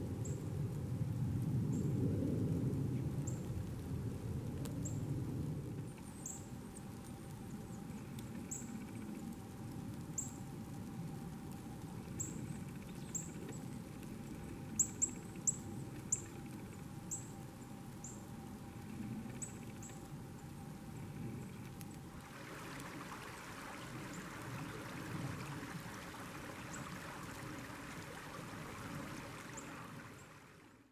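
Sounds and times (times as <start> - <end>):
songbird call notes: 5.9 - 6.9, 7.6 - 9.2, 10.1 - 10.4, 12.1 - 18.4, 19.2 - 21.7.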